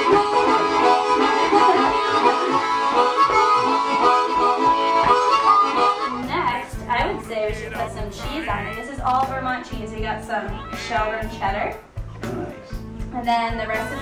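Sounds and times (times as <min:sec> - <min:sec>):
harmonica playing: 0:00.0 - 0:09.6.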